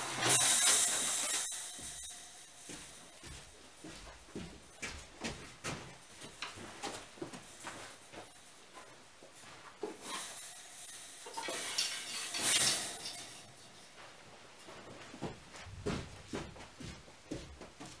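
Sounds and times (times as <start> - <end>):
scraping metal rattle: 0.0 - 3.3, 6.0 - 14.1
steel mesh clinking and rattling: 0.0 - 4.7, 5.3 - 14.2.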